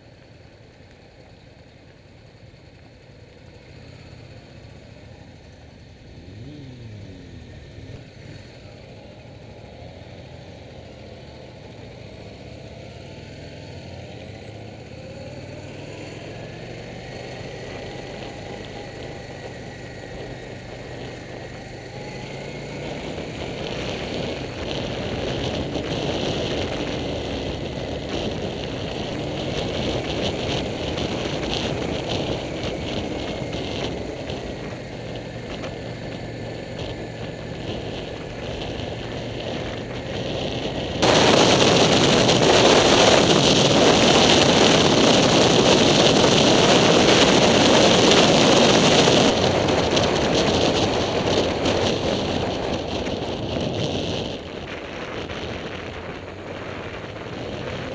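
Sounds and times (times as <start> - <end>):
motorcycle engine running: 0.0 - 57.9
wind buffeting microphone: 17.6 - 57.9.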